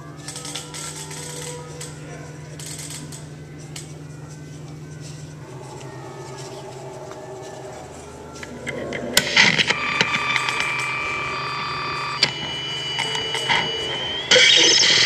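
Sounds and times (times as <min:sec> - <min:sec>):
electronic keyboard tones: 0:05.4 - 0:15.0
clicks: 0:08.4 - 0:15.0.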